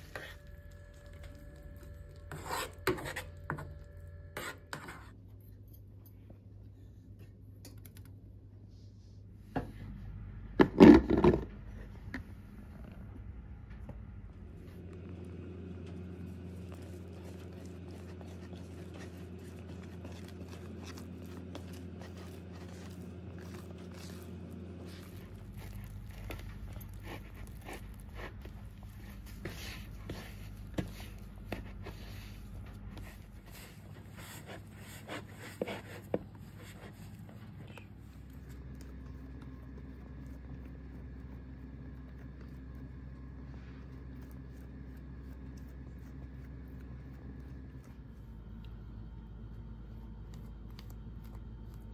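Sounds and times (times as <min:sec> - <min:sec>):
hands kneading sticky dough: 0:00.0 - 0:05.2, 0:14.4 - 0:51.9
steady low hum: 0:00.0 - 0:51.9
wet dough squelching and slapping: 0:16.3 - 0:37.2.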